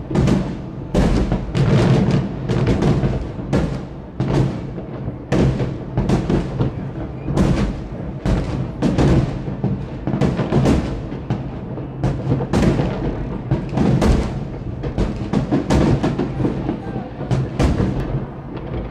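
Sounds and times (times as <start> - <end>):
fireworks booming: 0.0 - 18.9.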